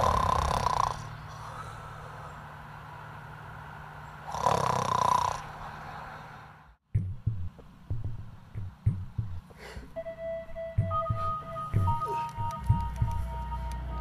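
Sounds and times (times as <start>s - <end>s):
person snoring: 0.0s - 2.2s, 4.3s - 5.5s
low steady hum: 0.0s - 4.3s, 5.4s - 14.0s.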